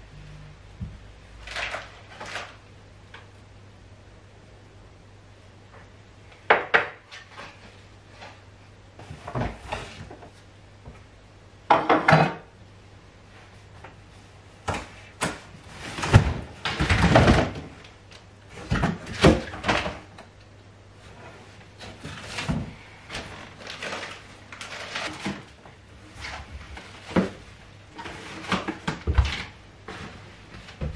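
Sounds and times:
faint low hum: 0:00.0 - 0:30.9
boxes knocking and clattering: 0:15.9 - 0:17.8.

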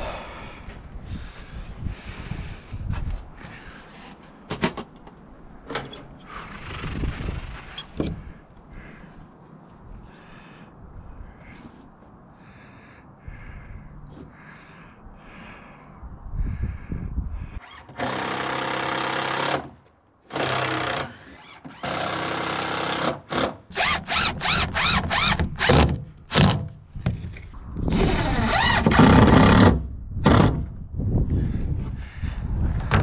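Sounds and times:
impact driver driving screws: 0:20.3 - 0:26.6.

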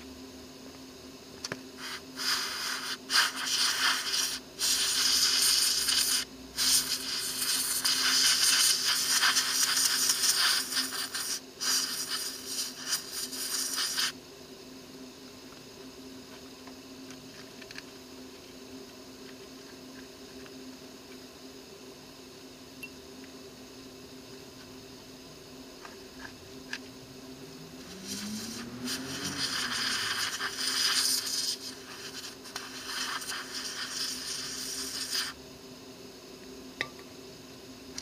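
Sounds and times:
compressed air hissing: 0:01.8 - 0:14.2, 0:27.5 - 0:35.4.

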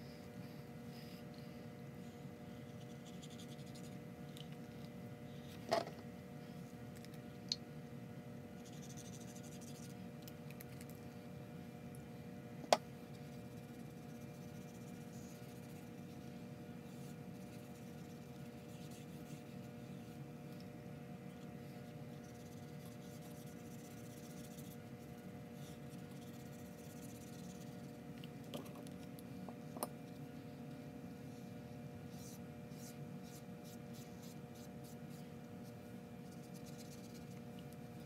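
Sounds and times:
background hum: 0:00.0 - 0:38.0
paintbrush strokes on paper: 0:13.1 - 0:20.2, 0:21.6 - 0:28.0, 0:32.1 - 0:38.0.

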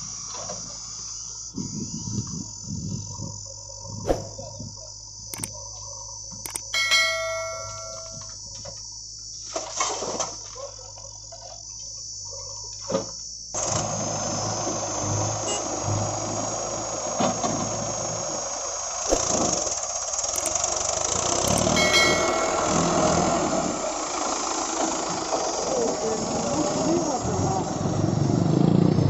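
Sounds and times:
insects chirring: 0:00.0 - 0:28.8
metallic clang: 0:06.8 - 0:08.2
low engine hum: 0:13.6 - 0:29.0
earth and stones thumping into trailer: 0:19.1 - 0:19.7.

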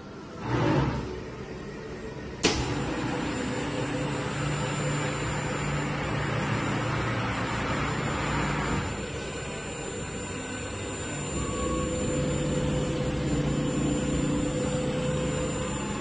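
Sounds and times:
machine hum with high tone: 0:00.0 - 0:16.0.

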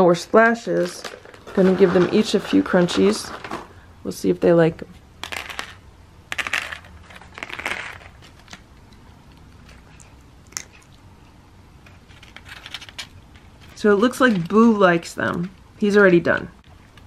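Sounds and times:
cat crunching kibble: 0:06.7 - 0:14.6.

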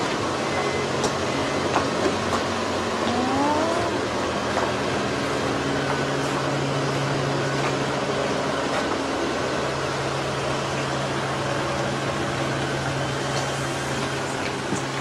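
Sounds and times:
short rising whine: 0:03.0 - 0:04.2.

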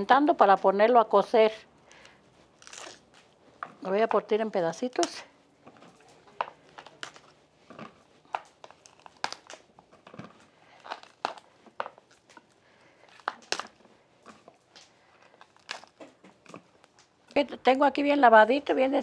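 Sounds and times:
cauliflower snapping and crunching: 0:02.5 - 0:03.3, 0:06.4 - 0:12.5, 0:13.1 - 0:17.2.

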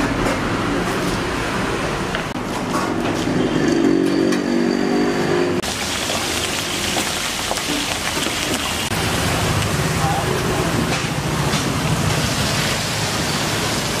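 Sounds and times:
chilies sizzling in hot oil: 0:05.6 - 0:14.0.

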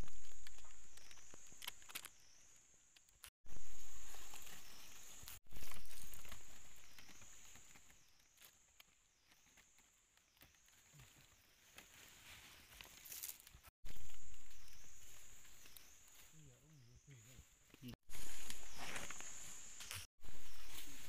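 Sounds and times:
insect trilling: 0:03.5 - 0:08.2, 0:13.9 - 0:17.3
hands scraping dirt and gravel: 0:11.4 - 0:16.0.

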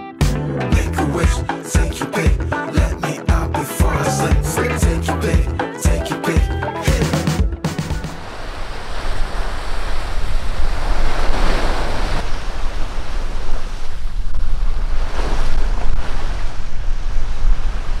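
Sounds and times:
sea waves washing onto beach: 0:08.1 - 0:18.0
wind rumbling on microphone: 0:08.2 - 0:18.0.

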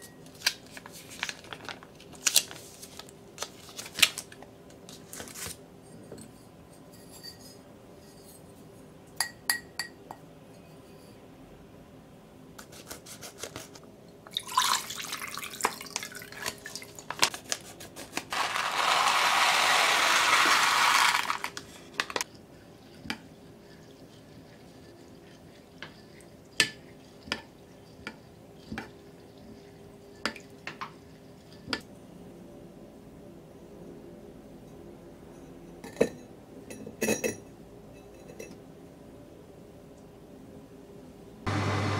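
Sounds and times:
liquid pouring with wet pattering: 0:14.3 - 0:17.3, 0:22.2 - 0:31.7
rice grains pouring into a pot: 0:18.3 - 0:22.2.

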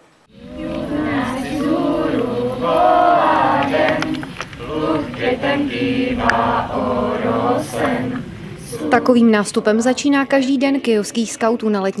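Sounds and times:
children singing in unison: 0:00.3 - 0:11.6.

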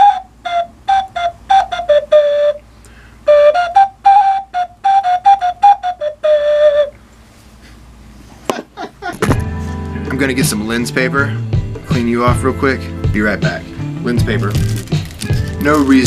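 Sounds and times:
ocarina melody: 0:00.0 - 0:07.1, 0:13.4 - 0:16.0.

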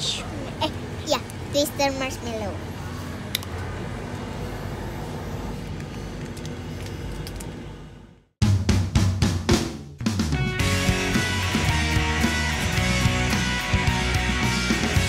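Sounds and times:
low background hum: 0:00.0 - 0:08.4
drum kit hits: 0:08.4 - 0:14.3
music: 0:08.4 - 0:15.0.

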